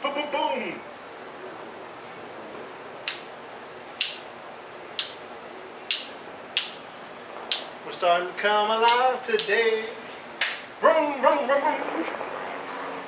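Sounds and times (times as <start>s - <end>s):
fingers snapping: 3.0s - 3.3s, 4.0s - 4.2s, 5.0s - 5.2s, 5.8s - 6.8s, 7.5s - 7.7s, 8.9s - 9.6s, 10.4s - 10.7s.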